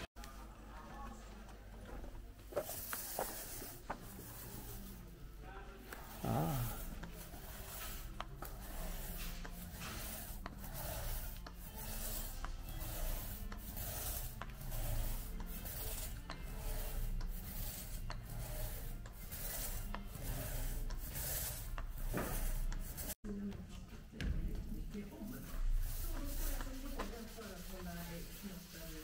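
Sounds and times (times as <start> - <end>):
roller scraping over fibreglass: 6.0 - 23.2, 25.2 - 29.0.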